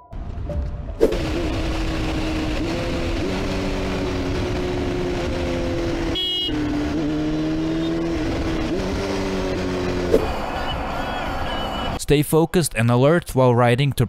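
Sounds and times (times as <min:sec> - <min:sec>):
wind and road noise: 0:00.1 - 0:12.0
motorcycle engine running: 0:01.1 - 0:10.1.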